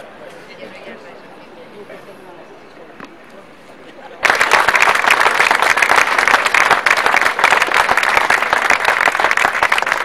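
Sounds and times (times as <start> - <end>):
crowd clapping: 4.2 - 10.0.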